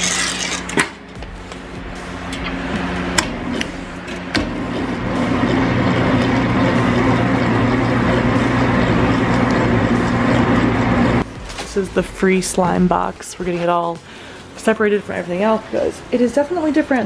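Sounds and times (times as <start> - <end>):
stand mixer running: 1.5 - 11.3.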